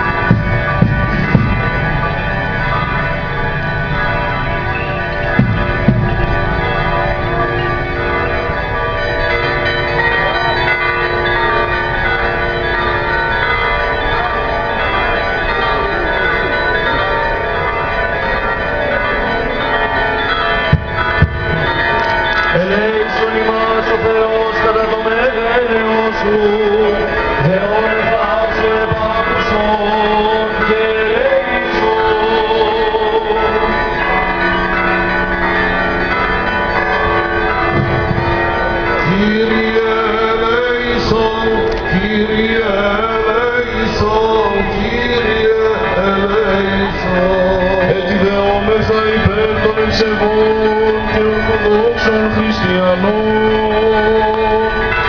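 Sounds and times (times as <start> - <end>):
man chanting into microphone: 22.6 - 33.5, 39.0 - 54.9.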